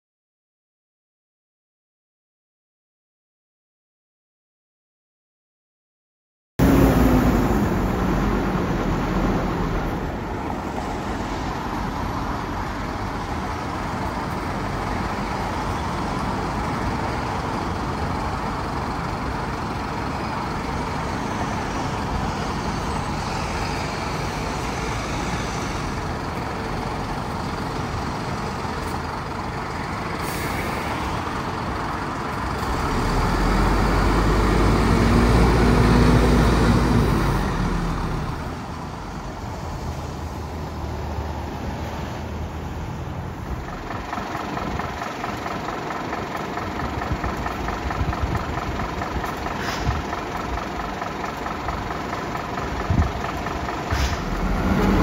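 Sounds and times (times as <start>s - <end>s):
diesel truck engine pulling away: 6.6s - 55.0s
air brake hiss: 30.2s - 31.0s, 49.6s - 50.1s, 53.9s - 54.4s.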